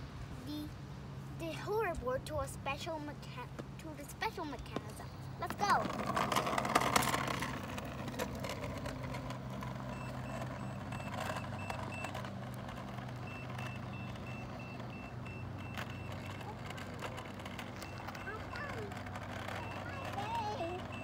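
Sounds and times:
go-kart rolling noise: 0:01.5 - 0:21.0
high electronic warning beeps: 0:13.2 - 0:16.5.

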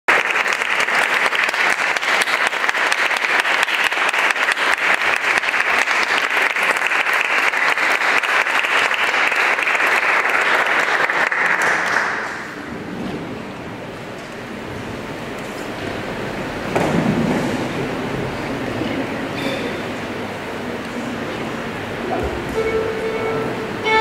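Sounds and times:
audience applauding: 0:00.1 - 0:12.7.

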